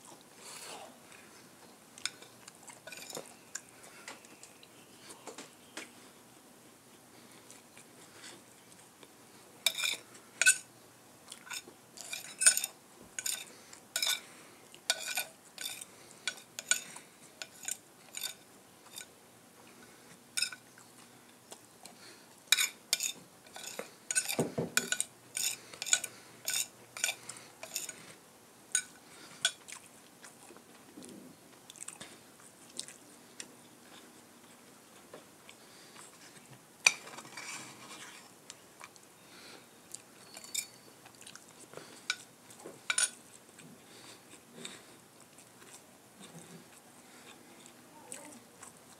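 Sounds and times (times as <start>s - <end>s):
cutlery clinking on a plate: 2.9s - 3.3s, 9.6s - 10.7s, 11.5s - 14.2s, 14.9s - 19.1s, 20.4s - 20.6s, 22.5s - 28.0s, 28.8s - 29.6s, 40.3s - 40.8s, 42.9s - 43.2s.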